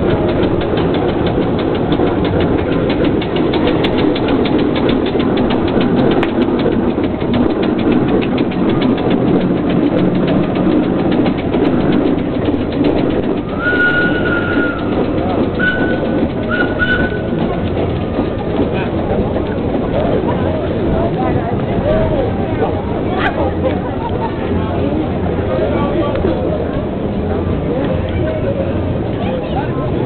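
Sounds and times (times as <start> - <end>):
steam engine clatter: 0.0 - 30.0
high whistle tone: 13.5 - 14.9.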